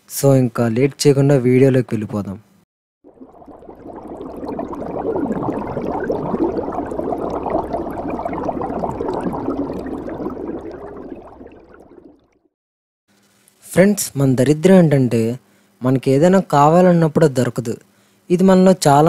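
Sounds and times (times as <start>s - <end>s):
underwater bubbling: 3.0s - 12.5s.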